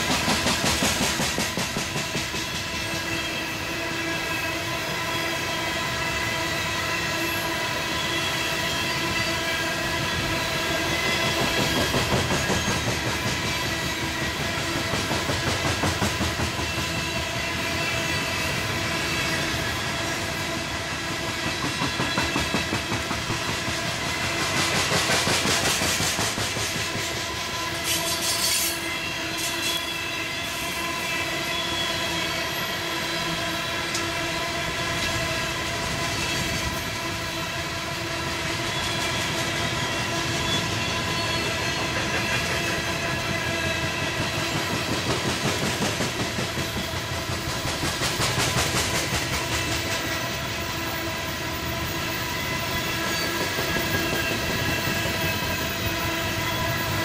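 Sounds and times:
train wheels clattering over rail joints: 0:00.0 - 0:03.4, 0:09.9 - 0:28.7, 0:38.7 - 0:50.7, 0:52.7 - 0:57.0
wheels squealing on rail: 0:00.0 - 0:57.0
sharp hissing screech: 0:27.8 - 0:30.1.

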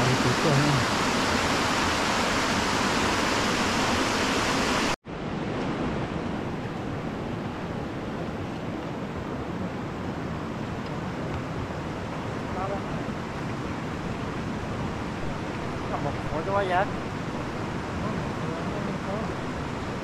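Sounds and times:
river rapids rushing over rocks: 0:00.0 - 0:05.0
shallow stream rushing: 0:00.0 - 0:20.0.

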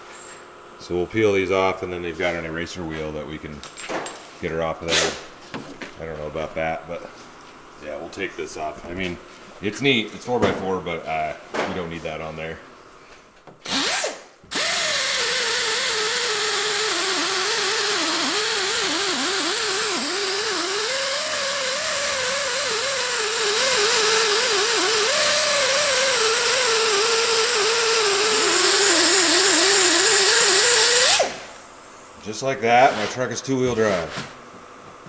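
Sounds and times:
pneumatic tool whining: 0:13.6 - 0:31.6.

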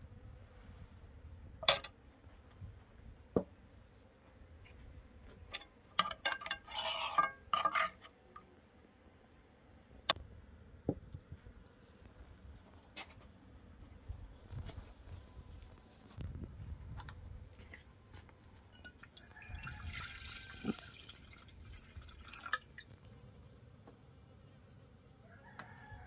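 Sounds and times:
dishes and utensils clinking: 0:05.5 - 0:08.0.

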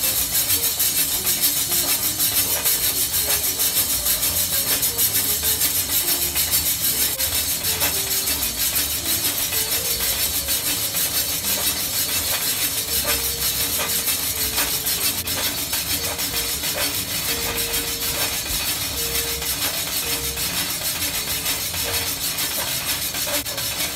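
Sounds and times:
instrumental music with steady beat: 0:00.0 - 0:23.9.

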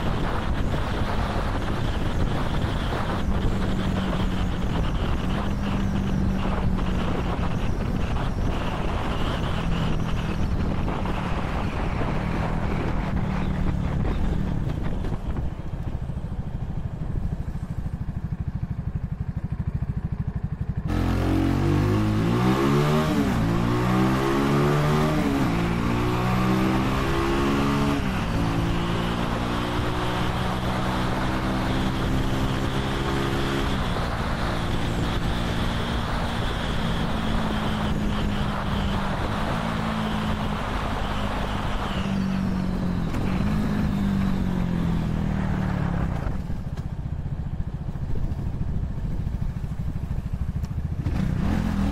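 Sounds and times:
motorcycle engine revving: 0:00.0 - 0:51.9
wind rushing over microphone: 0:00.0 - 0:51.9.

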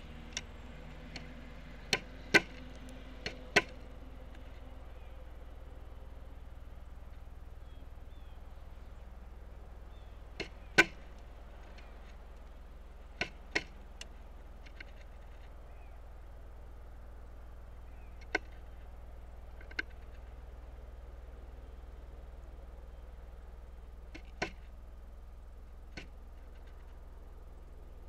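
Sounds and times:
woodpecker knocking on suet block: 0:00.0 - 0:05.2, 0:07.0 - 0:15.9, 0:17.8 - 0:20.6, 0:24.0 - 0:24.8, 0:25.8 - 0:27.0.

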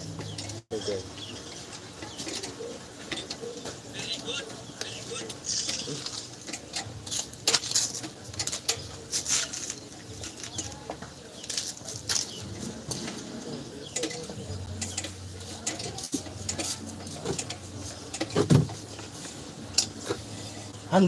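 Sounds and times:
metal clicks and scrapes: 0:05.3 - 0:10.8, 0:13.9 - 0:18.5.

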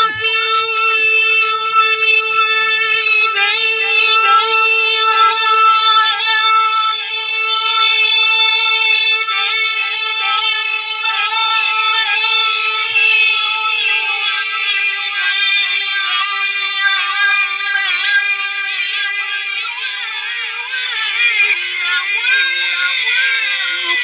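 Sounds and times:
man reciting melodically: 0:00.0 - 0:24.0.

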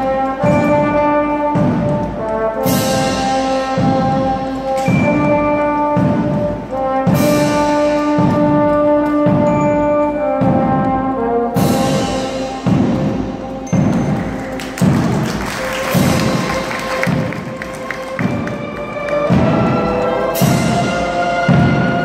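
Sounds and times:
marching band playing: 0:00.0 - 0:22.0
bass drum beats: 0:12.6 - 0:22.0.

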